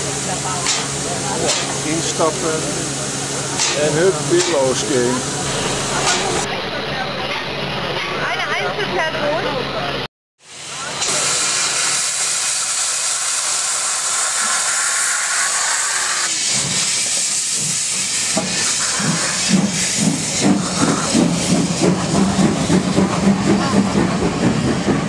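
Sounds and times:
steam hissing from drain cocks: 0:10.6 - 0:23.2
locomotive exhaust chuffs: 0:11.0 - 0:25.0.

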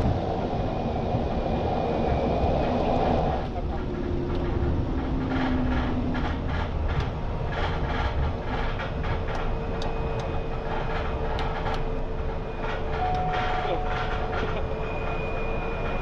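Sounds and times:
turboprop engine running: 0:00.0 - 0:16.0
wheels rumbling on runway: 0:00.0 - 0:16.0
steady tone: 0:09.4 - 0:16.0.

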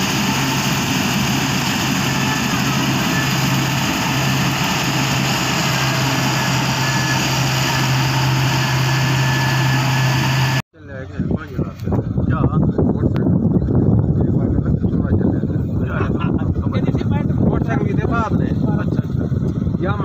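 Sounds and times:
combine harvester engine drone: 0:00.0 - 0:10.6
machine rushing noise: 0:00.0 - 0:10.6.

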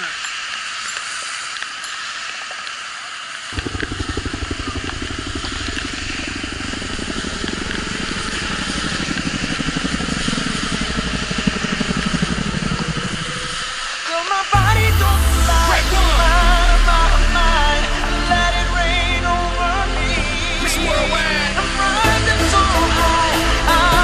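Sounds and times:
wind buffeting microphone: 0:03.6 - 0:13.9.

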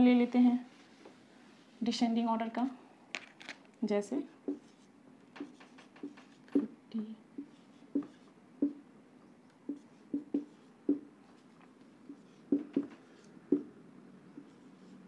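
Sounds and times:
marker pen tapping and writing on whiteboard: 0:04.4 - 0:06.8, 0:07.4 - 0:08.8, 0:09.4 - 0:15.0.

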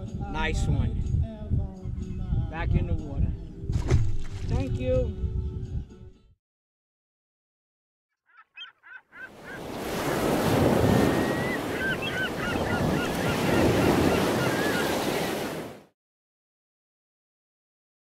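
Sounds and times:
birds calling: 0:08.2 - 0:15.7
waves washing in: 0:09.4 - 0:15.9.

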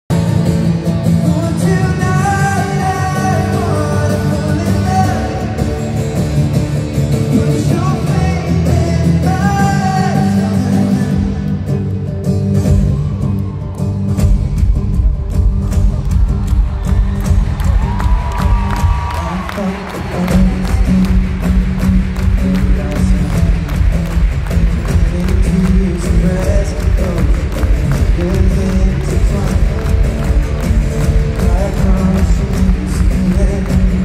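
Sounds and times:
crowd noise: 0:00.1 - 0:34.0
guitar: 0:00.1 - 0:34.0
male singer: 0:01.1 - 0:12.0, 0:18.3 - 0:34.0.

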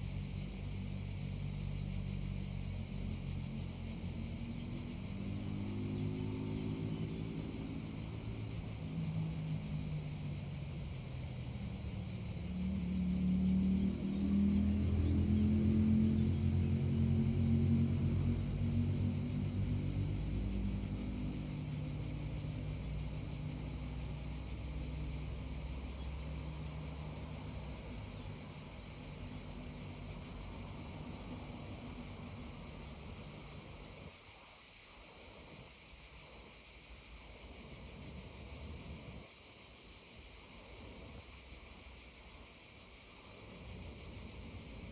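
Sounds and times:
engine low hum: 0:00.0 - 0:34.1
cicadas droning: 0:00.0 - 0:44.9.

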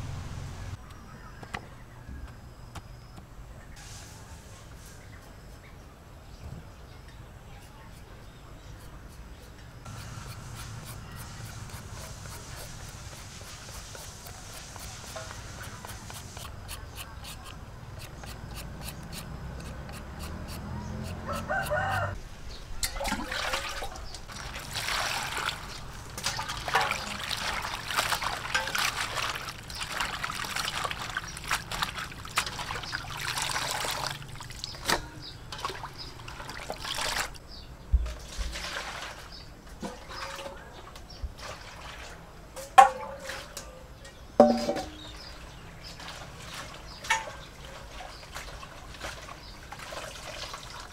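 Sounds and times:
peeler scraping a carrot: 0:08.7 - 0:21.8
vegetables splashing in bowl of water: 0:22.8 - 0:34.8
steel bowls clanking: 0:44.4 - 0:45.1.

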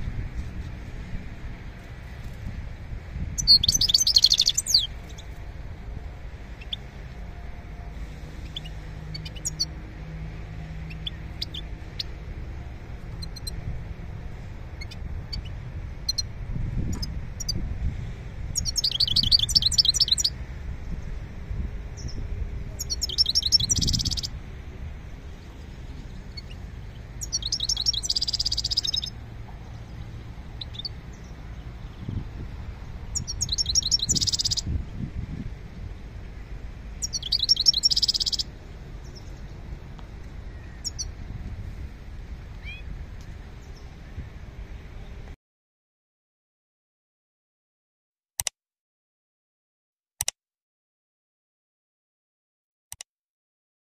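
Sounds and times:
songbird twittering: 0:03.4 - 0:05.3, 0:06.6 - 0:06.9, 0:08.4 - 0:09.7, 0:10.8 - 0:12.2, 0:13.1 - 0:13.6, 0:18.6 - 0:20.4, 0:22.0 - 0:24.4, 0:25.3 - 0:32.2, 0:32.8 - 0:34.7, 0:37.0 - 0:39.5, 0:40.5 - 0:41.2, 0:42.6 - 0:44.0
single bird chirps: 0:27.2 - 0:29.1.

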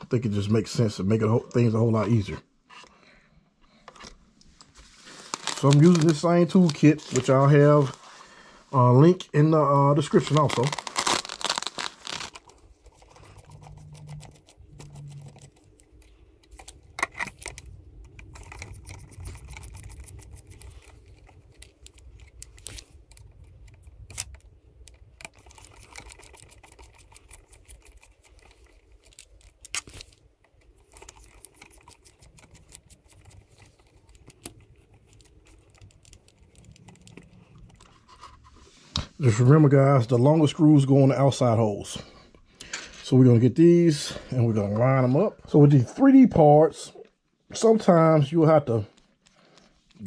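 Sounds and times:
small tool and plastic parts clicking: 0:12.2 - 0:38.0.

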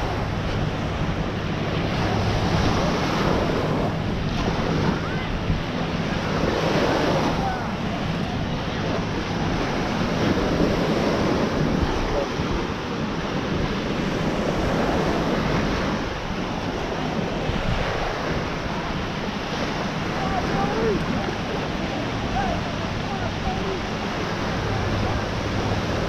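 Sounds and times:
waves washing onto beach: 0:00.0 - 0:26.0
wind buffeting microphone: 0:00.0 - 0:26.0.

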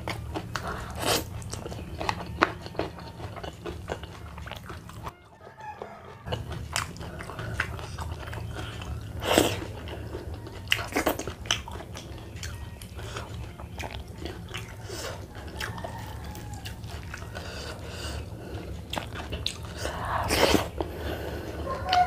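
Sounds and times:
steady low hum: 0:00.0 - 0:05.2, 0:06.1 - 0:22.0
crunchy bites and chewing: 0:00.0 - 0:22.0.

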